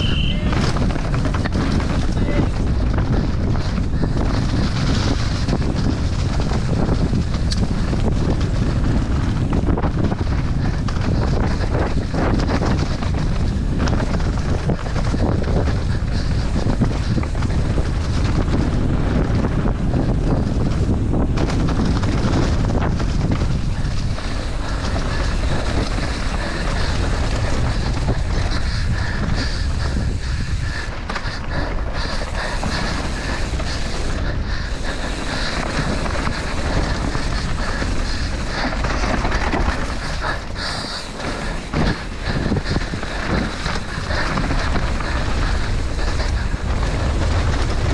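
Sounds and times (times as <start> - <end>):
mountain bike rattling on dirt trail: 0.0 - 47.9
wind buffeting microphone: 0.0 - 47.9.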